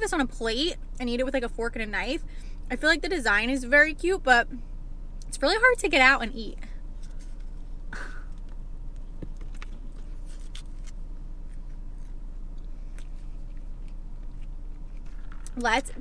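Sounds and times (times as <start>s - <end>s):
steady low hum: 0.0s - 16.0s
person biting and chewing: 9.3s - 15.5s.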